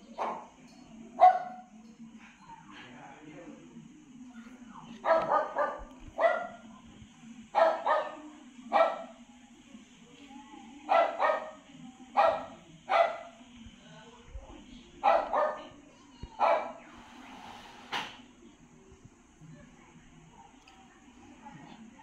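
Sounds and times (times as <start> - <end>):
dog barking: 0.1 - 0.5, 1.2 - 1.7, 5.0 - 6.7, 7.5 - 9.2, 10.9 - 13.4, 15.0 - 15.8, 16.4 - 16.9.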